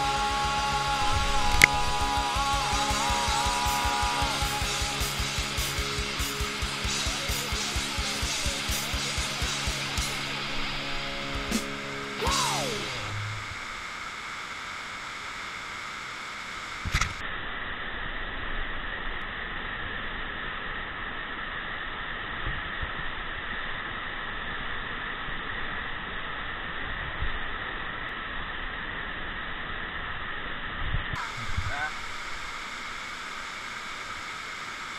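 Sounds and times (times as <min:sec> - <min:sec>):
waterfall rushing: 0:00.0 - 0:17.2, 0:31.2 - 0:34.9
sharp click: 0:16.8 - 0:17.2.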